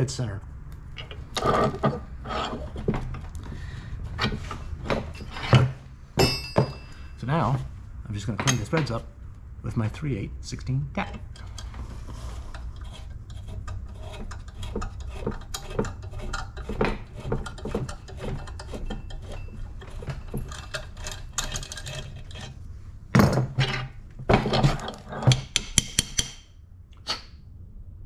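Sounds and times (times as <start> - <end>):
metal clanks of bench vise: 4.2 - 7.1.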